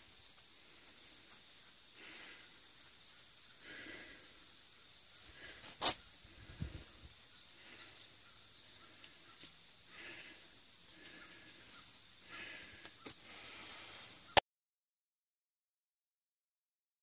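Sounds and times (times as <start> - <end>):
faint rustles and ticks: 0.1 - 1.9.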